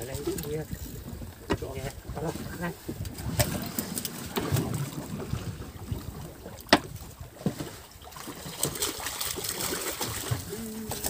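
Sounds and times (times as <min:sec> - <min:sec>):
wind buffeting microphone: 0:00.0 - 0:07.8.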